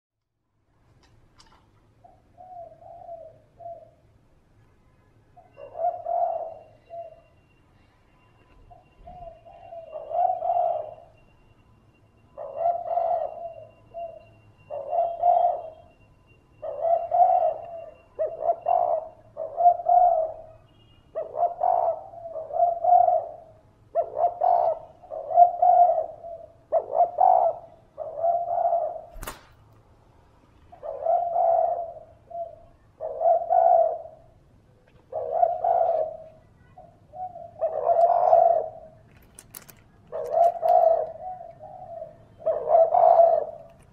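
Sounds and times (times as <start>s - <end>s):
dove cooing: 2.0s - 4.1s, 5.4s - 7.9s, 8.7s - 11.2s, 12.4s - 16.0s, 16.6s - 29.2s, 30.7s - 43.9s
sharp click: 29.2s - 29.8s.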